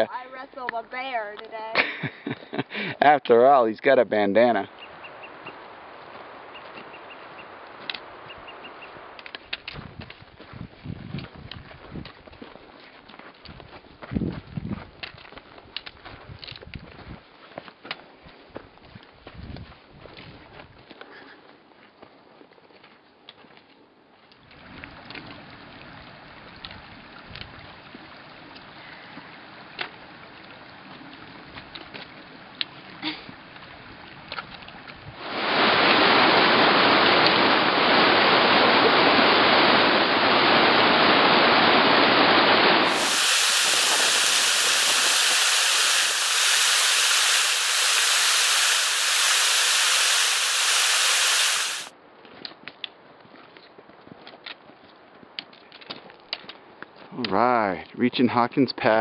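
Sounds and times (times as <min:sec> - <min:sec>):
creek rushing over rocks: 0:35.2 - 0:51.9
loud rushing noise: 0:39.7 - 0:51.9.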